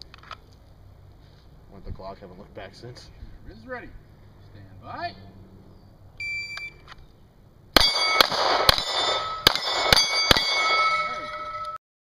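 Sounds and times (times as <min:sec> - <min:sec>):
shot timer beep: 0:06.2 - 0:06.8
pistol shots: 0:07.8 - 0:11.1
steel targets ringing: 0:07.8 - 0:11.8.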